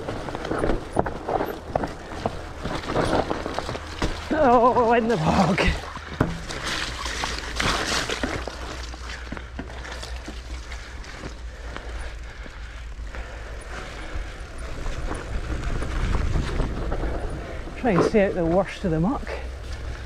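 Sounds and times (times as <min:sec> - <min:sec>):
bike clicks and rattles: 0:00.0 - 0:18.6, 0:19.2 - 0:20.0
bike tyres on muddy grass: 0:00.0 - 0:20.0.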